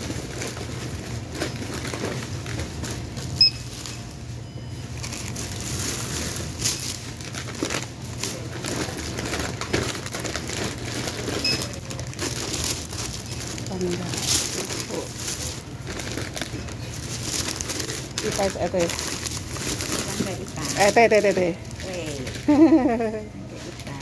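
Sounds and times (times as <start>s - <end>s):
plastic packaging rustling: 0.0s - 4.3s, 4.9s - 24.0s
steady low hum: 0.0s - 24.0s
checkout till beeping: 3.3s - 7.1s, 11.2s - 12.0s.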